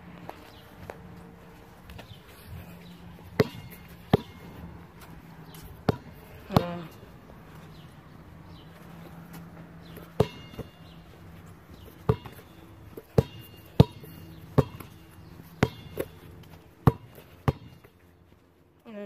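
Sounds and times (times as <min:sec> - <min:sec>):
basketball bouncing on pavement: 0:00.2 - 0:18.4.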